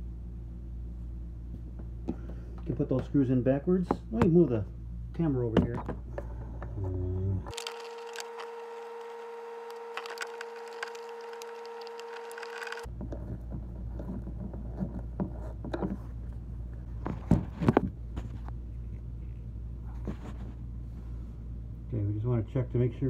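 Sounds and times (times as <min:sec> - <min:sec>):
steady hum: 0:00.0 - 0:23.0
screw being turned by hand: 0:07.5 - 0:13.3.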